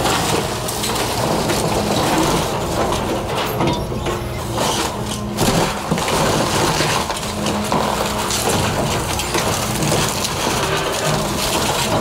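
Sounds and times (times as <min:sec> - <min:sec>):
excavator crushing wood debris: 0:00.0 - 0:12.0
excavator engine running: 0:00.0 - 0:12.0
wood crackling and snapping: 0:04.6 - 0:12.0.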